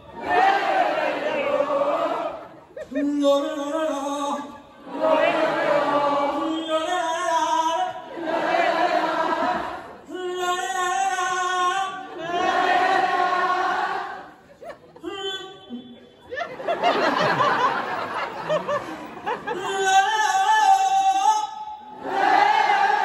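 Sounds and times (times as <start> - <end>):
crowd singing back: 0.0 - 2.8, 3.8 - 14.4, 21.9 - 23.0.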